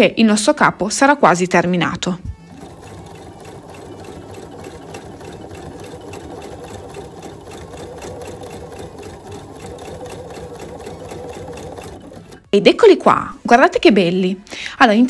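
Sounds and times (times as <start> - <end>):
sewing machine stitching: 1.9 - 13.3.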